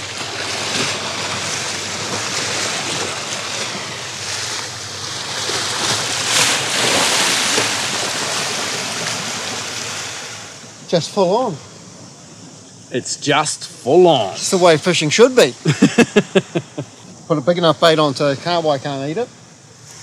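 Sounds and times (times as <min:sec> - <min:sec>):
sea waves washing over rocks: 0:00.0 - 0:11.5.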